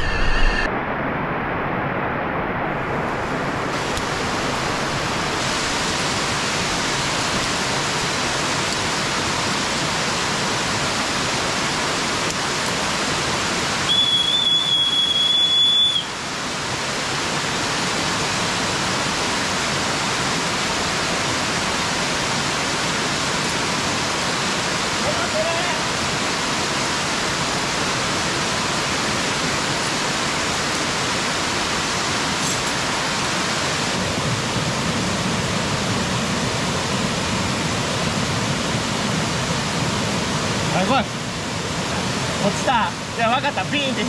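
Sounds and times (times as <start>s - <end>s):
steady high tone: 0.0s - 3.7s
waterfall rushing: 0.0s - 44.0s.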